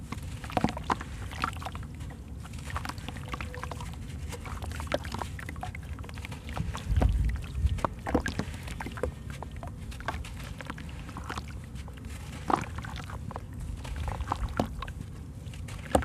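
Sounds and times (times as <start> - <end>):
grit splashing into water: 9.9 - 15.0.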